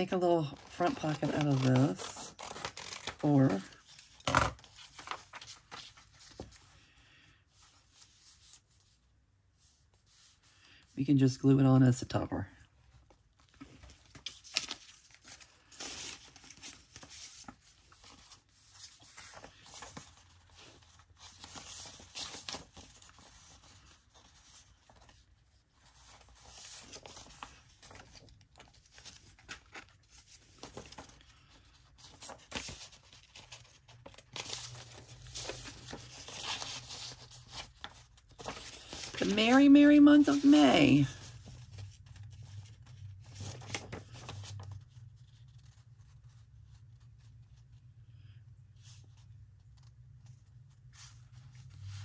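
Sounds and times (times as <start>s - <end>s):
paper rustling and tearing: 0.0s - 6.9s, 13.4s - 47.8s.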